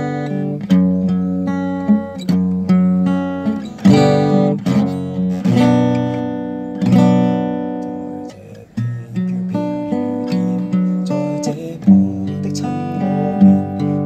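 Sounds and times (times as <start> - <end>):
acoustic guitar strummed chords: 0.0 - 14.0.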